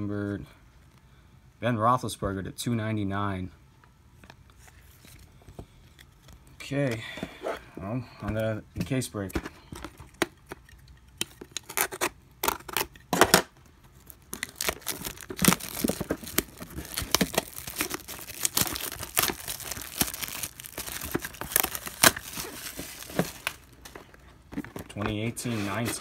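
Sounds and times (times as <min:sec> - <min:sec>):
packaging tearing and crinkling: 0:11.3 - 0:24.2.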